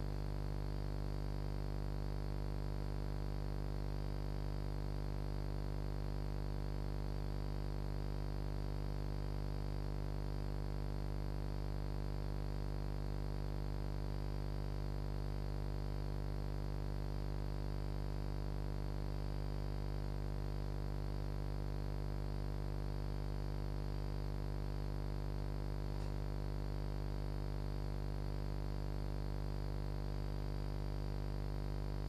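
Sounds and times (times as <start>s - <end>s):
electrical mains hum: 25.6s - 27.2s.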